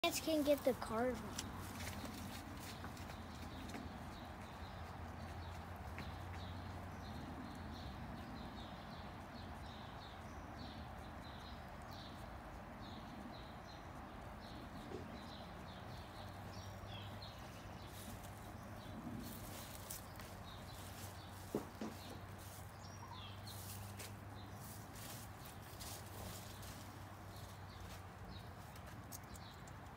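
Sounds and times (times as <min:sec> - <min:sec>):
bird chirping: 0:01.4 - 0:29.9.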